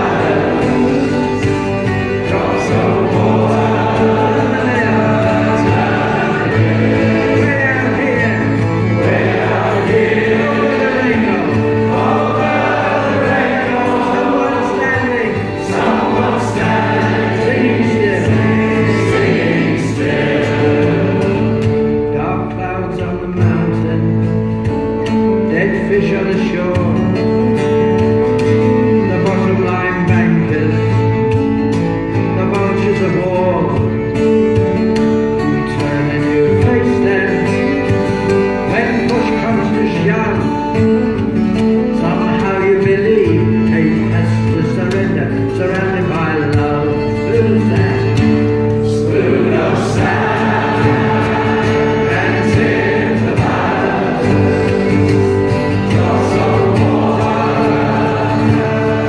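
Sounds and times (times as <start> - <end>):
men singing: 0.0 - 22.1, 45.7 - 59.0
accordion: 0.0 - 59.0
strummed acoustic guitars: 0.0 - 59.0.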